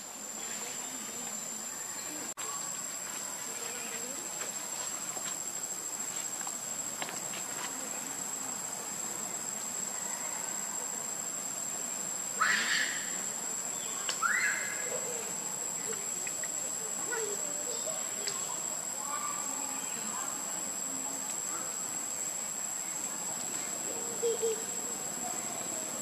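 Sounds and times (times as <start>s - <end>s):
macaque squeals: 12.4s - 13.2s, 14.2s - 15.0s.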